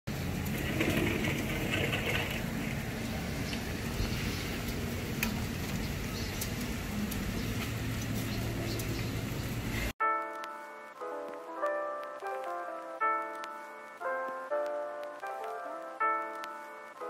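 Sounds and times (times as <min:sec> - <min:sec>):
rain falling on leaves: 0:00.1 - 0:10.5, 0:11.2 - 0:17.0
water drips ticking: 0:00.4 - 0:09.6.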